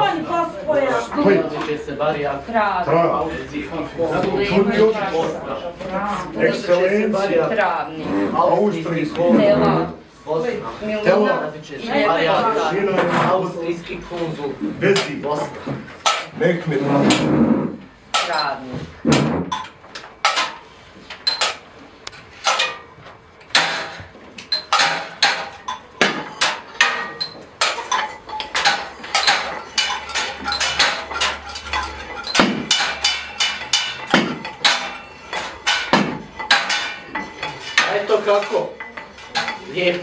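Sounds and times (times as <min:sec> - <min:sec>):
sharp knocks and clinks: 0:18.1 - 0:40.0.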